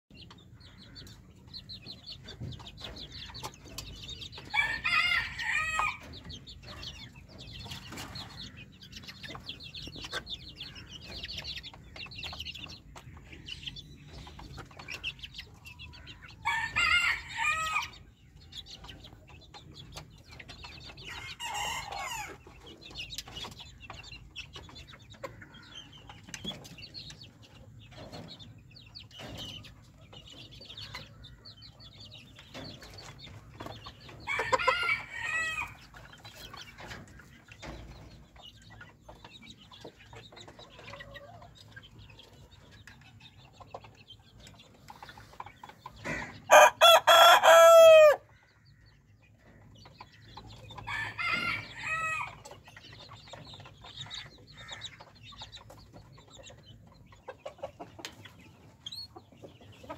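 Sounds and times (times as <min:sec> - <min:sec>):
chickens cheeping and clucking: 0:00.1 - 0:59.9
chicken drawn-out calls: 0:04.4 - 0:06.2, 0:16.0 - 0:18.0, 0:21.1 - 0:22.4, 0:34.2 - 0:35.9, 0:45.0 - 0:48.6, 0:50.1 - 0:52.5.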